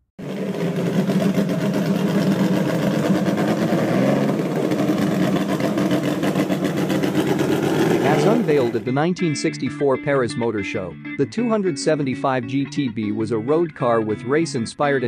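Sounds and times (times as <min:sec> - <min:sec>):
car engine idling: 0:00.1 - 0:08.9.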